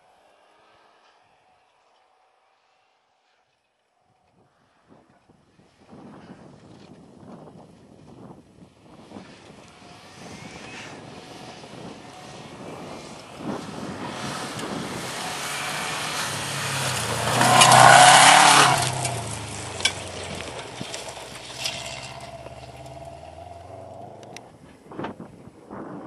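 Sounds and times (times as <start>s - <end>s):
gravel and tyre rush: 0.0s - 26.0s
rally car engine passing: 8.9s - 24.9s.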